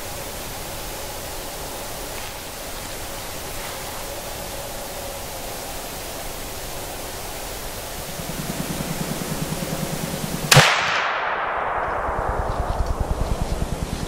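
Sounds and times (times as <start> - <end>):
steady hiss: 0.0 - 14.0
fast low pulsing beat: 7.5 - 10.5, 11.8 - 14.0
shotgun shot with echo: 10.5 - 13.1.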